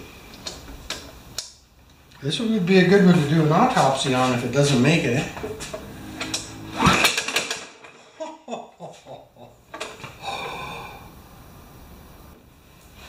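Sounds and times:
engine whirring and clattering: 4.3 - 8.0
recoil starter rope pull: 5.4 - 8.0.

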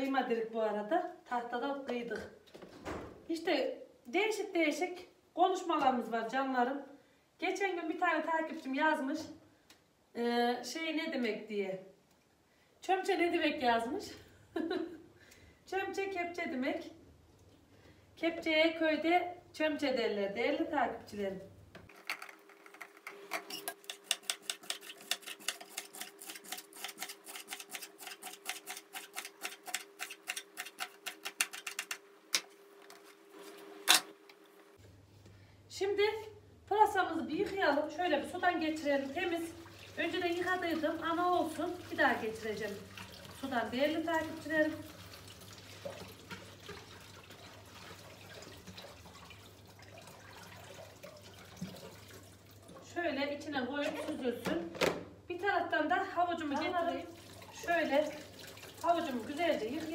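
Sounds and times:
water splashing in a sink: 38.3 - 53.1, 56.3 - 59.9.

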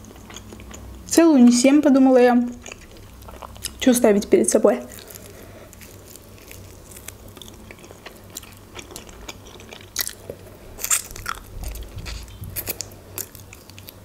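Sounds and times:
person chewing food: 0.0 - 1.1, 2.5 - 3.8, 4.9 - 14.0.

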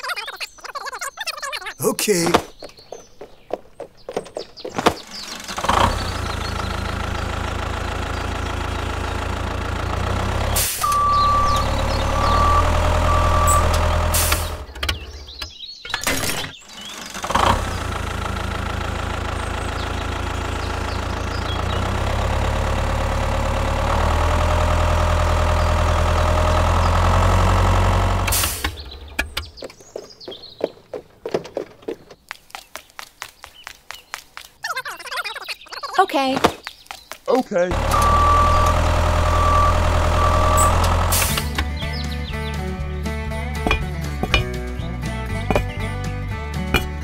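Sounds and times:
tractor engine running: 4.2 - 15.6, 16.3 - 30.2, 37.7 - 47.0
beeps: 10.8 - 14.0, 37.9 - 41.0.

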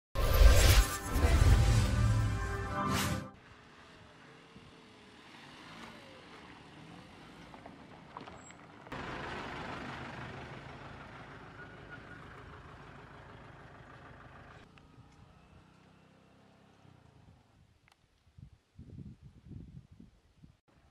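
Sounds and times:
car driving by: 0.6 - 17.1
fire truck passing: 1.4 - 8.1, 8.7 - 16.6.

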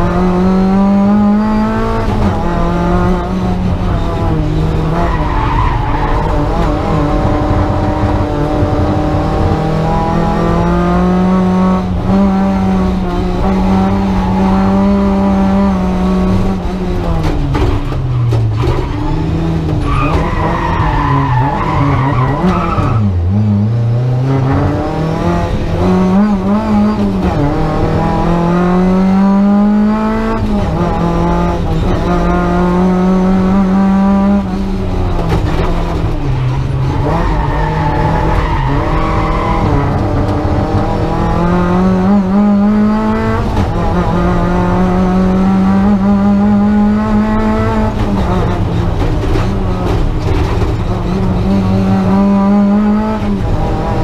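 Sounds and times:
rally car engine accelerating: 0.0 - 54.0.

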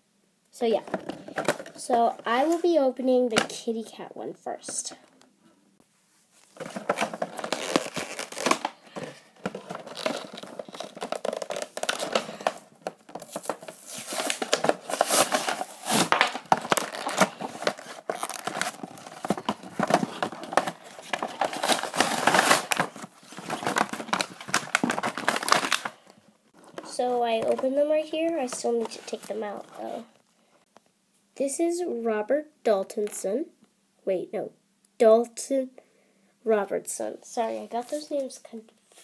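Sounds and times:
plastic wrappers crinkling and tearing: 6.4 - 27.7.

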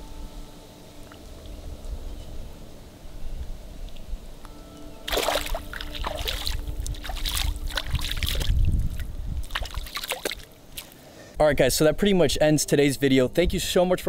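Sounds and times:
water splashing and sloshing: 5.0 - 11.1.

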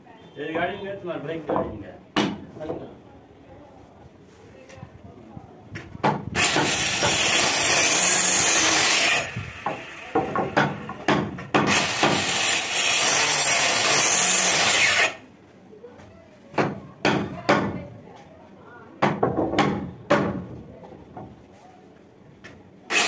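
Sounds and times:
knocks of wood and tool: 1.5 - 2.9, 5.7 - 7.2, 9.6 - 12.2, 19.0 - 21.4
circular saw cutting wood: 6.4 - 10.6, 11.7 - 15.2.

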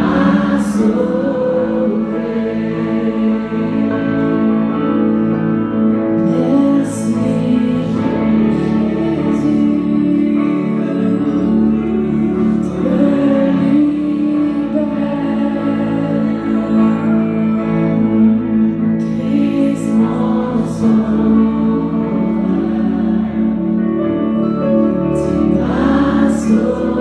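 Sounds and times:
woman singing: 0.0 - 4.7, 6.1 - 24.0, 24.7 - 27.0
electric guitar: 0.0 - 27.0
keyboard: 0.0 - 27.0.

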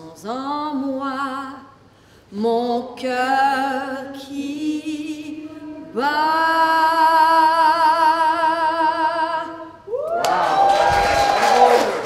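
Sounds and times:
woman singing unaccompanied: 0.0 - 9.9
audience applause and cheers: 10.0 - 12.0.

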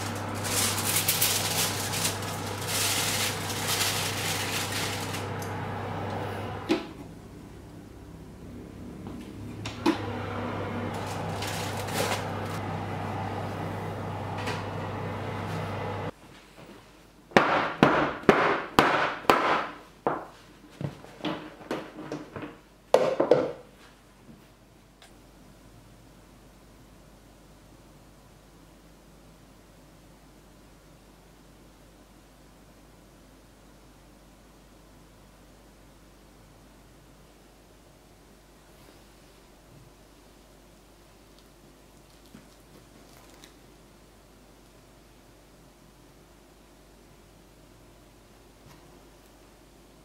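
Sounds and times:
foil crinkling: 0.0 - 5.5, 10.9 - 12.6, 42.0 - 43.6
fan oven humming: 0.0 - 19.6.

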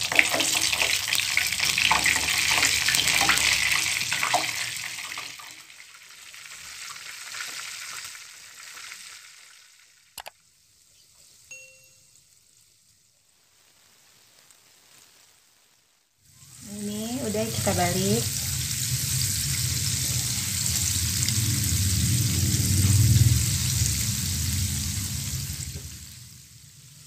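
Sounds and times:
food sizzling in hot oil: 0.0 - 27.0
sharp click: 10.2 - 10.4
short tone: 11.5 - 12.2.

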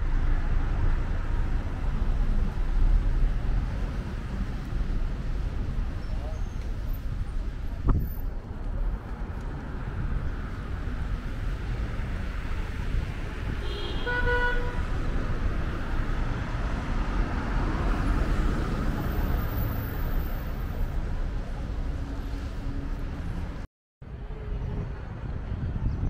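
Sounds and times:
road traffic: 0.0 - 26.0
car passing: 8.8 - 23.6
vehicle horn toot: 13.6 - 14.8.

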